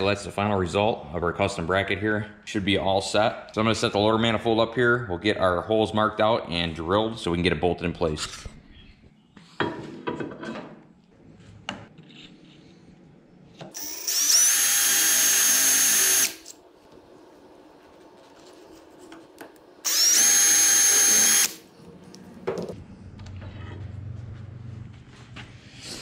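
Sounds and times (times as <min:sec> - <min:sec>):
cordless drill drilling metal: 0:13.8 - 0:16.5, 0:19.8 - 0:21.6.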